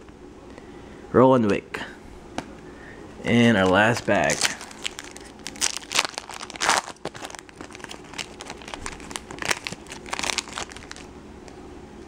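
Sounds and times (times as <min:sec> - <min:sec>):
foil wrapper crinkling and tearing: 0:03.3 - 0:11.1.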